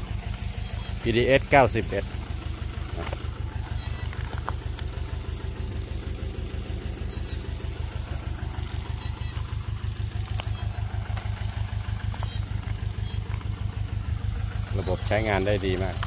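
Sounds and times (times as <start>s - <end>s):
diesel compressor engine running: 0.0s - 16.0s.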